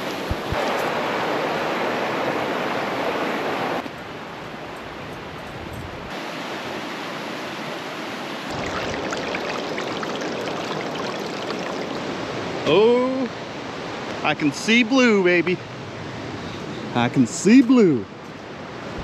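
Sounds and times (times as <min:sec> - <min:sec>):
creek water running: 0:06.1 - 0:15.5.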